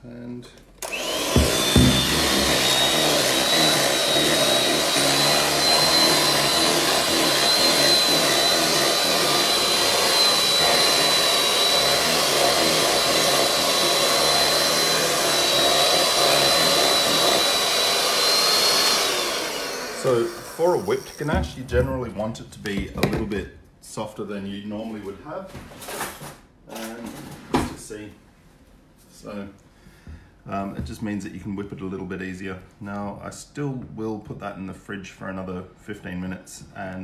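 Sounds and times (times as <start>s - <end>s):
stand mixer whirring: 0.8s - 21.1s.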